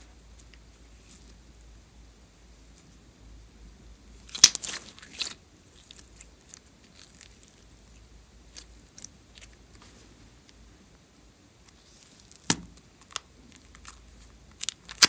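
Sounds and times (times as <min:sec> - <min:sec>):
slime squishing with clicks: 0:04.2 - 0:07.7, 0:11.6 - 0:15.0.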